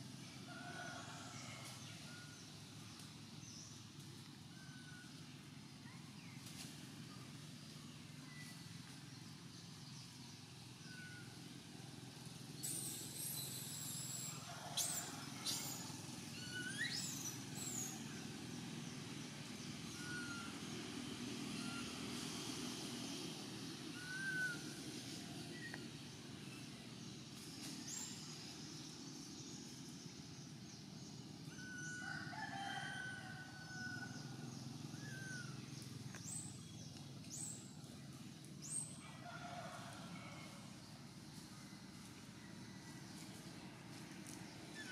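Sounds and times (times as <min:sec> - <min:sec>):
low background hum: 0:00.0 - 0:44.9
animal chirps and whistles: 0:16.4 - 0:17.8.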